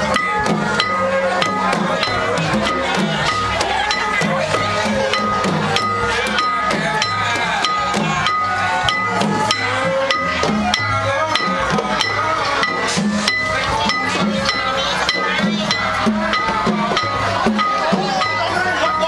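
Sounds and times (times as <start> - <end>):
drums beating lively rhythm: 0.0 - 19.0
small cymbals ringing: 0.0 - 19.0
voices singing along: 0.0 - 19.0.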